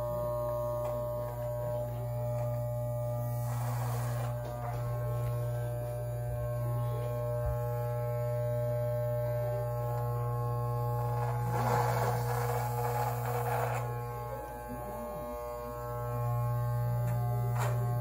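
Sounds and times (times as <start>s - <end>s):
blades cutting beard hair: 0.0s - 18.0s
electric beard trimmer buzzing: 0.0s - 18.0s.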